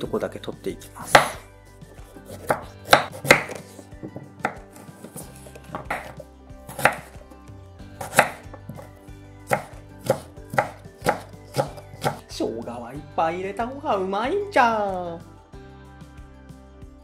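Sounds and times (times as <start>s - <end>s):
knife knocking on wooden cutting board: 2.4s - 7.1s, 8.0s - 8.9s.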